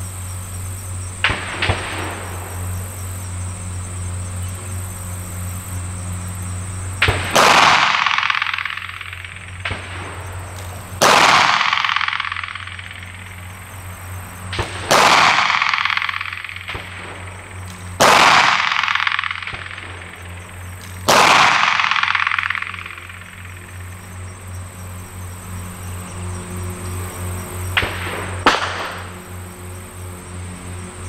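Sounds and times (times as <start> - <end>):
pistol shots echoing: 7.0 - 13.7, 14.5 - 24.1, 27.8 - 29.2.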